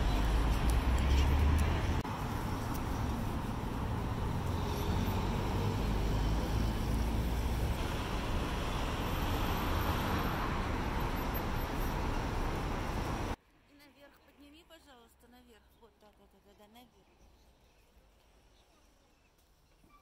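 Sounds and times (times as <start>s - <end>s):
road traffic rumble: 0.0s - 13.4s.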